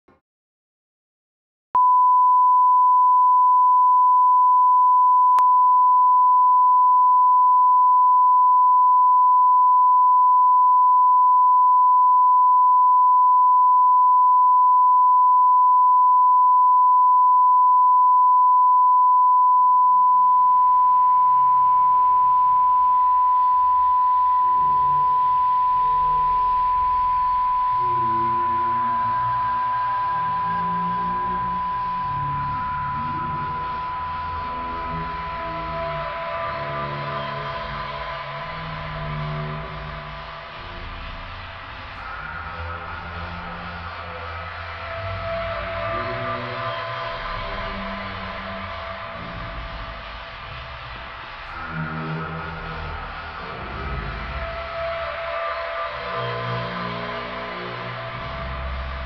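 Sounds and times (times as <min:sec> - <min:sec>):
steady test tone: 0:01.8 - 0:38.1.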